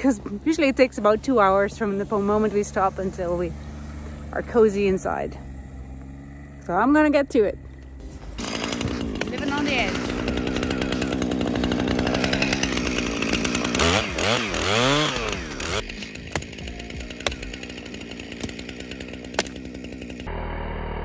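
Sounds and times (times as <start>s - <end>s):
chainsaw cutting and revving: 0.0s - 21.0s
sharp cracks: 8.4s - 20.3s.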